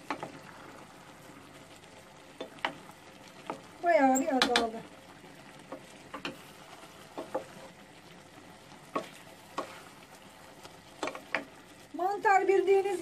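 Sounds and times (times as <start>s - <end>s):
faint steady sizzle: 0.0s - 13.0s
wooden spoon stirring mushrooms: 2.2s - 4.8s, 5.6s - 13.0s
spoon knocking and scraping pot: 7.1s - 7.7s, 8.9s - 9.8s, 11.0s - 11.5s.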